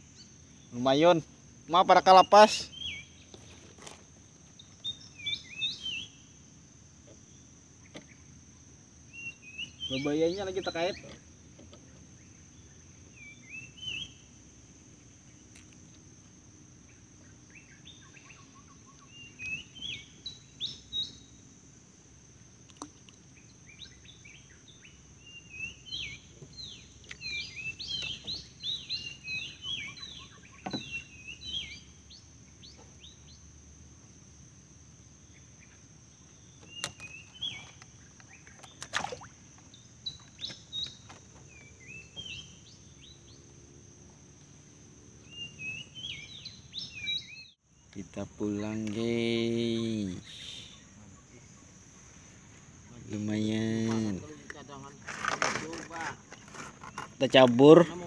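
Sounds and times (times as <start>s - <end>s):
birds chirping: 0.0s - 21.6s, 22.8s - 34.2s, 35.1s - 58.0s
high-pitched insect drone: 41.9s - 58.0s.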